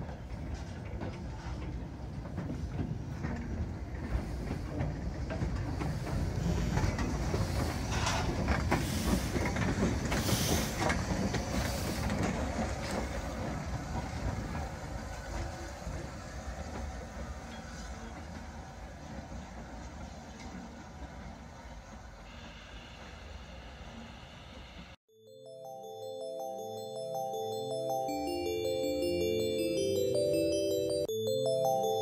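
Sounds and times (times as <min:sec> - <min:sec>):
train wheels rumbling on rail: 0:00.0 - 0:25.0
steam hissing: 0:05.9 - 0:10.9.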